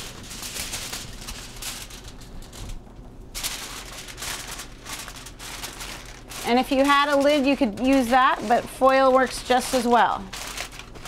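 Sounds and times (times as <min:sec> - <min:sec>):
aluminum foil crinkling: 0:00.0 - 0:11.0.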